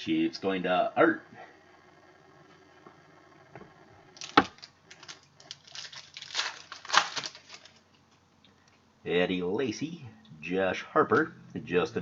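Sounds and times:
card pack wrapper crinkling: 4.2 - 7.9.

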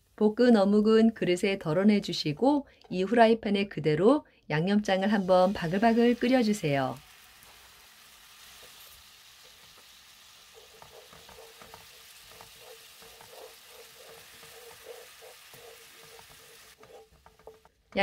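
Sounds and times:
sauce sizzling in a frying pan: 4.9 - 17.7
spatula scraping a pan: 8.4 - 17.8.

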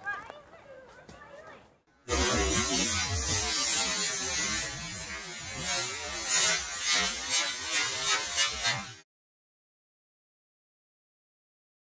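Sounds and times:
battery venting hiss: 2.1 - 9.0.

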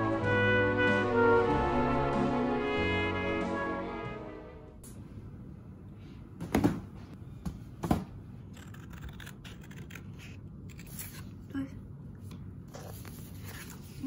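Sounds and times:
scissors cutting card: 8.5 - 11.4
paper clicks and rustles: 12.7 - 14.0.

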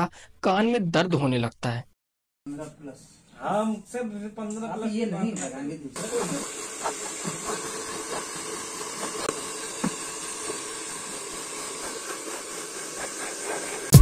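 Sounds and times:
hair dryer running: 6.0 - 14.0.

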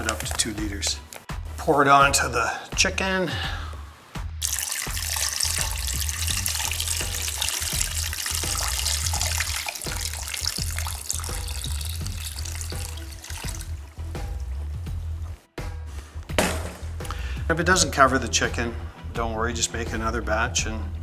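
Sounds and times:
background music: 0.0 - 21.0
liquid pouring and splashing: 4.4 - 14.6.

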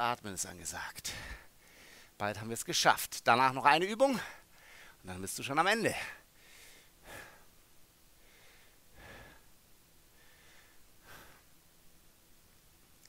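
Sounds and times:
man breathing deeply: 1.1 - 2.2, 4.2 - 5.0, 6.2 - 7.6, 8.2 - 11.7.

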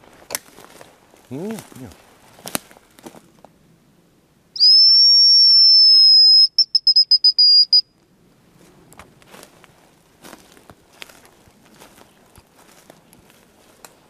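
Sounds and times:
high thin bird call whistle: 4.6 - 7.8
whistle trill: 4.6 - 7.8.

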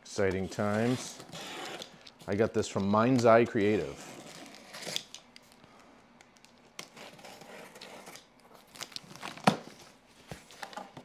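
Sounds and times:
box cutter scraping tape: 0.5 - 2.0.

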